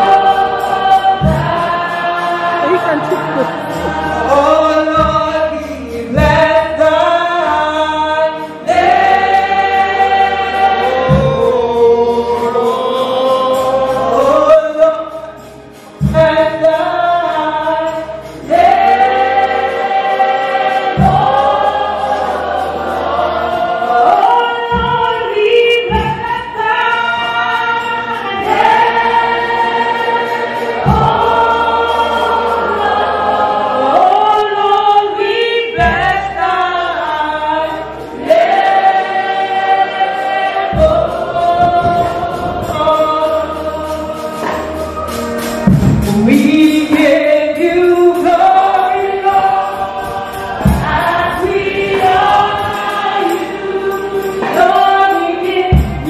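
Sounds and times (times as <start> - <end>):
congregation singing gospel song: 0.0 - 56.0
steady low bass note: 2.6 - 3.2.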